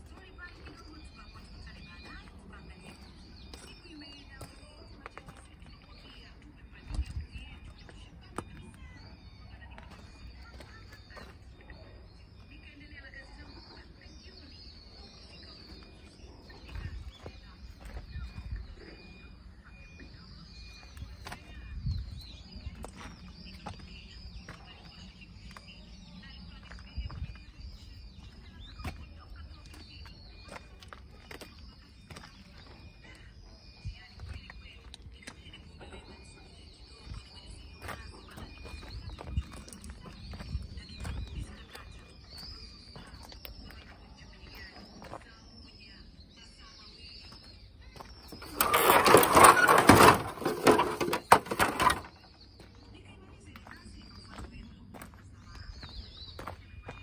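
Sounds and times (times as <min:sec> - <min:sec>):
small birds chirping: 0:00.0 - 0:57.0
faint high-pitched chirring: 0:42.1 - 0:52.8
close rustling and crackling: 0:48.3 - 0:52.3.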